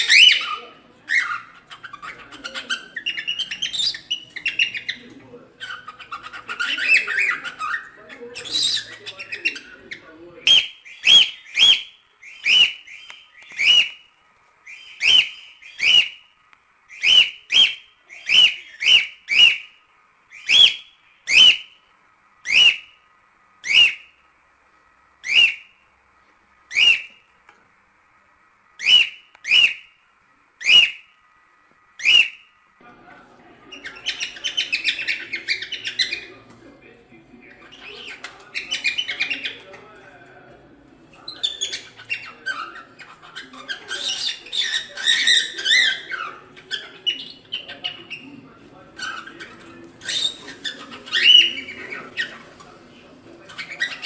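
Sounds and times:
cockatiel whistling calls: 0:00.0 - 0:05.0, 0:05.6 - 0:14.0, 0:14.6 - 0:16.2, 0:16.9 - 0:19.7, 0:20.3 - 0:21.7, 0:22.4 - 0:22.9, 0:23.6 - 0:24.1, 0:25.2 - 0:25.7, 0:26.7 - 0:27.2, 0:28.8 - 0:29.9, 0:30.6 - 0:31.0, 0:32.0 - 0:32.4, 0:33.8 - 0:36.3, 0:37.6 - 0:39.6, 0:41.3 - 0:48.3, 0:49.0 - 0:52.5
cockatiel scratchy chatter: 0:00.0 - 0:14.0, 0:33.6 - 0:36.5, 0:37.4 - 0:40.0, 0:41.1 - 0:54.0.

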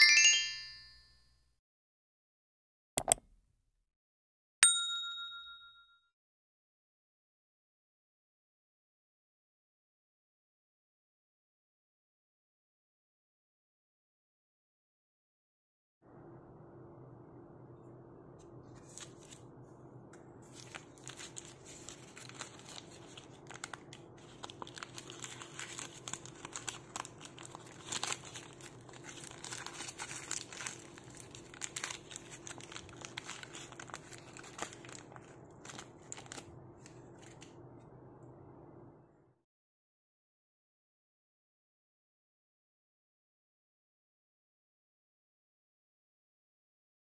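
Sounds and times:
paper wrapper crinkling: 0:18.8 - 0:19.5, 0:20.4 - 0:37.6.

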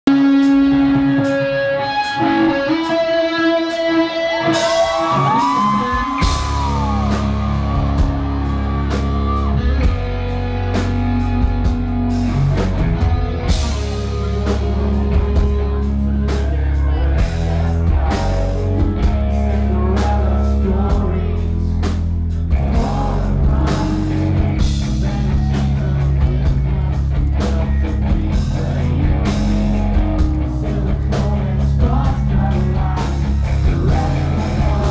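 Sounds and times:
live rock band playing: 0:00.0 - 0:34.9
male singer: 0:02.1 - 0:07.2, 0:13.5 - 0:34.9.

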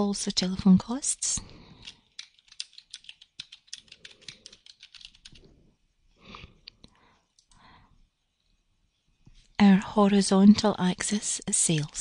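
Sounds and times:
typing on computer keyboard: 0:01.8 - 0:05.5.

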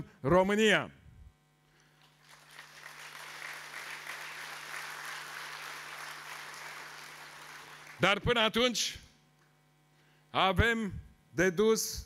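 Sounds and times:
large audience applauding: 0:02.0 - 0:08.1.

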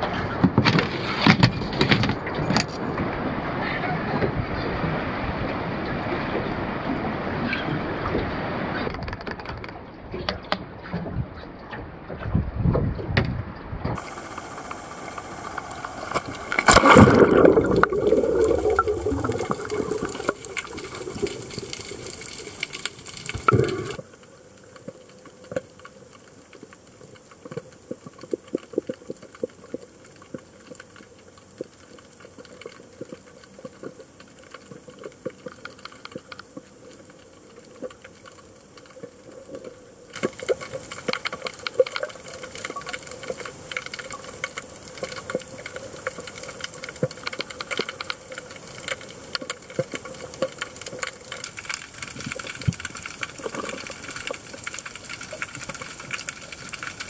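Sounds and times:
sharp underwater clicks and crackles: 0:00.0 - 0:04.3, 0:07.4 - 0:13.4, 0:14.0 - 0:57.0
rush of water and bubbles: 0:00.0 - 0:13.2, 0:13.9 - 0:57.0
muffled underwater hush: 0:14.0 - 0:24.0
loud splash into water: 0:16.1 - 0:20.8.

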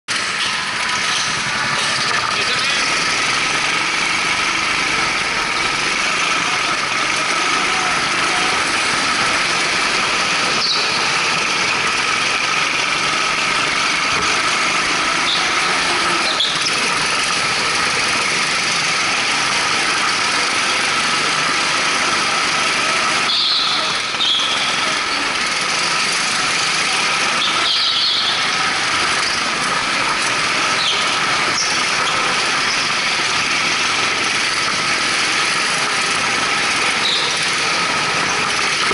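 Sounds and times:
go-kart engines droning: 0:00.1 - 0:38.9
tyre squeals: 0:06.6 - 0:11.9, 0:12.6 - 0:17.8, 0:22.7 - 0:25.9, 0:27.2 - 0:33.4, 0:36.6 - 0:38.9.

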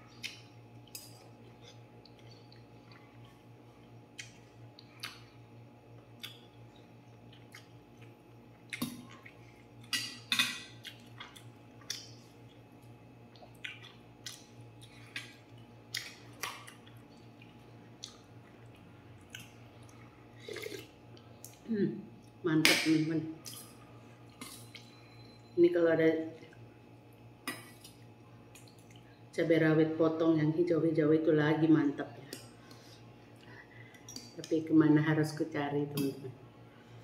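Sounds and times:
low steady hum: 0:00.0 - 0:37.0
slurping and chewing: 0:13.3 - 0:21.6.

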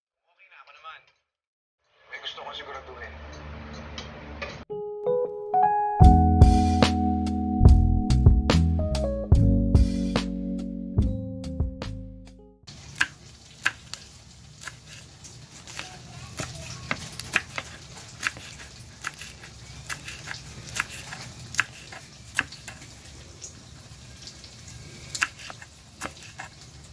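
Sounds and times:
knife chopping on wooden board: 0:13.0 - 0:22.9, 0:25.1 - 0:26.6.

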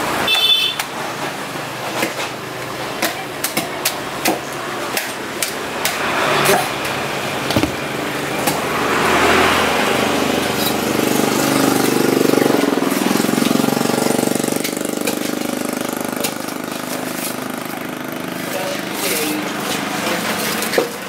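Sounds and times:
knife chopping on wooden block: 0:07.5 - 0:07.9
small engine running: 0:08.6 - 0:21.0.

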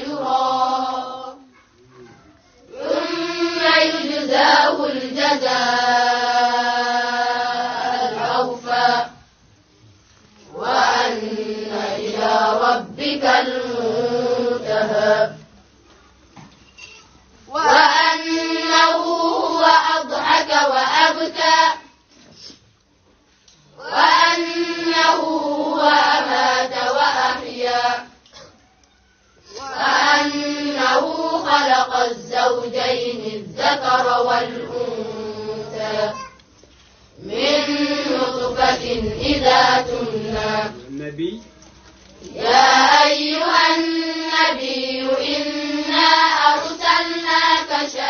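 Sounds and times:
group of voices chanting: 0:02.7 - 0:09.2.

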